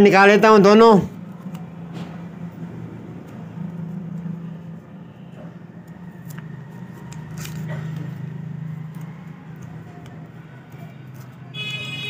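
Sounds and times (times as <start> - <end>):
paper wrapper crinkling: 5.8 - 11.5.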